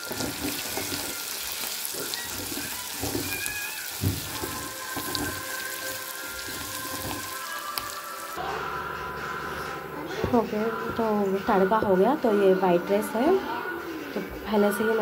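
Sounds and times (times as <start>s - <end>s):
spatula knocking and scraping pan: 0.0s - 7.4s
oil spatters popping: 0.0s - 8.2s
spices sizzling in hot oil: 0.0s - 8.4s.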